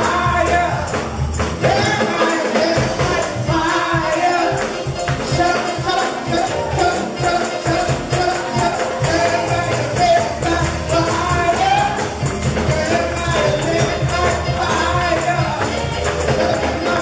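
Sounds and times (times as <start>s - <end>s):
tambourine beat: 0.0s - 17.0s.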